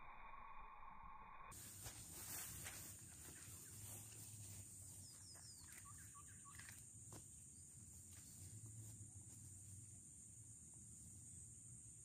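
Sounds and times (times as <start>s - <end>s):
faint bird chirps: 2.7s - 6.8s.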